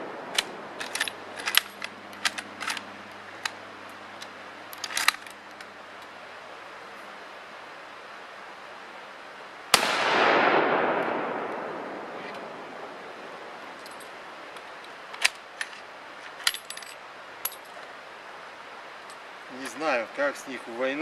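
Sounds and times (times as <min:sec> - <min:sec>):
rifle bolt metallic clicks: 0:00.3 - 0:03.6, 0:04.2 - 0:05.7
rifle shot with echo: 0:09.7 - 0:12.6.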